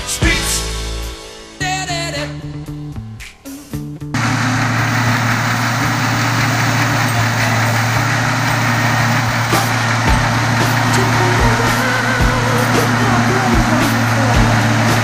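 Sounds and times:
tractor diesel engine under load: 0:04.2 - 0:15.0.

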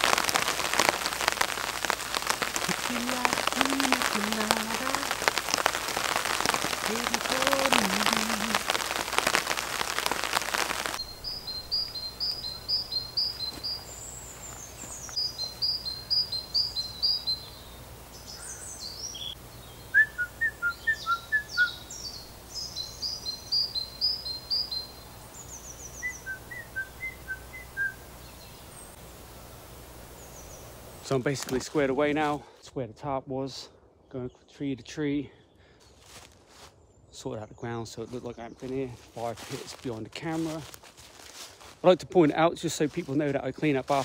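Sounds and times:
rain pattering on a tarp: 0:00.0 - 0:32.6, 0:38.0 - 0:44.0
birds chirping: 0:00.0 - 0:44.0.

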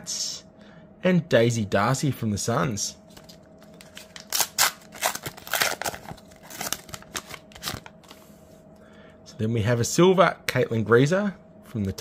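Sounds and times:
wrapper tearing and crinkling: 0:03.2 - 0:07.9.

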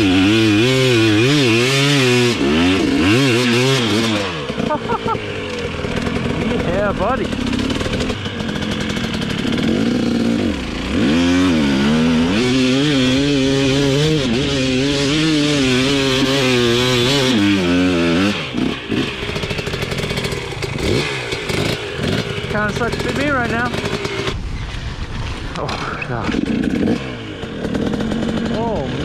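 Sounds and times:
dirt bike engine revving: 0:00.0 - 0:29.0.

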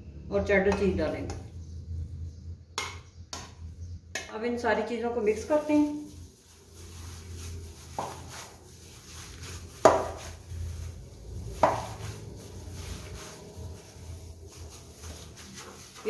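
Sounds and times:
gloved hand mixing food in bowl: 0:04.9 - 0:16.0.

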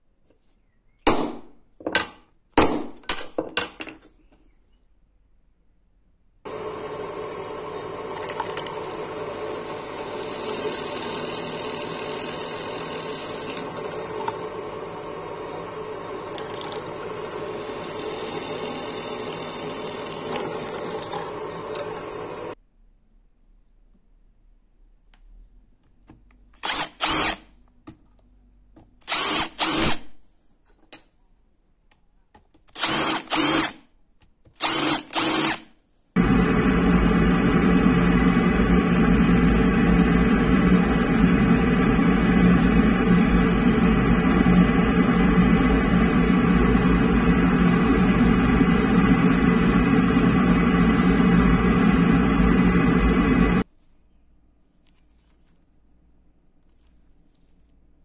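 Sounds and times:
gas torch flame hissing: 0:06.5 - 0:10.4, 0:19.5 - 0:22.6, 0:36.2 - 0:53.7
electric drill bursts on steel: 0:08.7 - 0:13.7, 0:14.6 - 0:22.6, 0:26.6 - 0:27.4, 0:29.1 - 0:30.1, 0:32.8 - 0:33.8, 0:34.6 - 0:53.6.

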